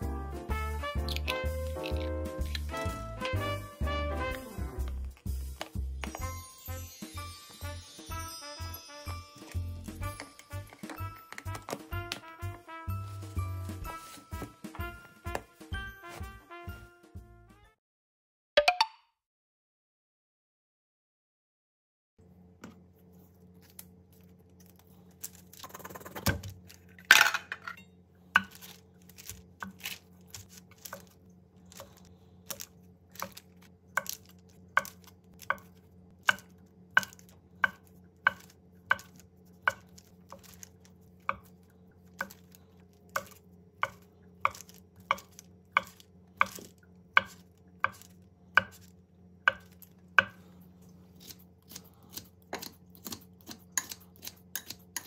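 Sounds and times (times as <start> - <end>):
knife chopping on cutting board: 34.8 - 41.5, 43.1 - 48.9, 49.5 - 50.4, 51.2 - 55.0.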